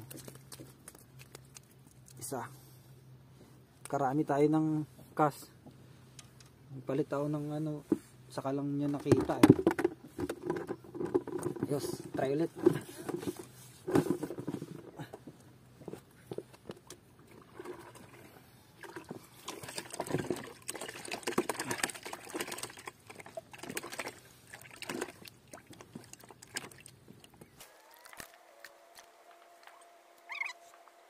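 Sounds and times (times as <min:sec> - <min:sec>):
water splashing and trickling: 0:00.0 - 0:02.3, 0:17.2 - 0:27.5.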